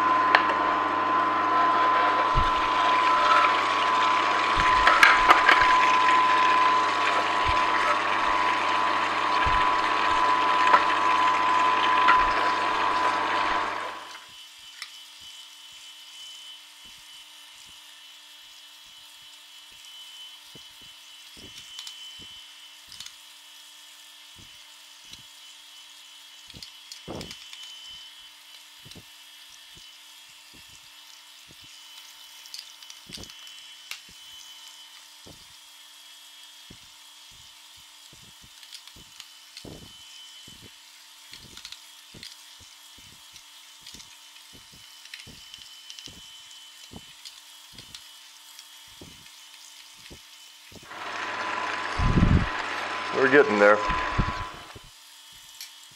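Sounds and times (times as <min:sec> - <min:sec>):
juicer grinding: 0:00.0 - 0:14.8, 0:38.0 - 0:55.0
motor hum: 0:00.0 - 0:15.3, 0:31.5 - 0:55.5.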